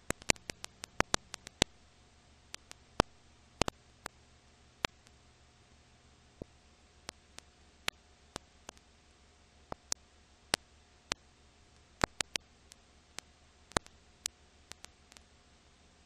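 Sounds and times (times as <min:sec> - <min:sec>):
film crackle clicks and pops: 0:00.0 - 0:01.9, 0:02.5 - 0:04.2, 0:04.8 - 0:05.2, 0:06.4 - 0:08.9, 0:09.7 - 0:15.3
faint steady hiss: 0:00.0 - 0:16.0
low hum: 0:00.0 - 0:16.0.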